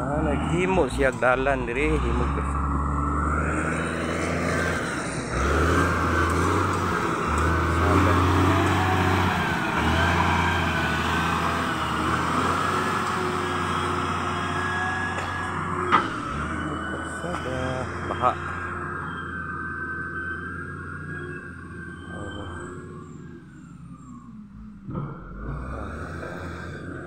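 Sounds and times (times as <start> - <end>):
high wavering whine: 0.0 - 24.9
wheel loader diesel engine droning: 0.0 - 27.0.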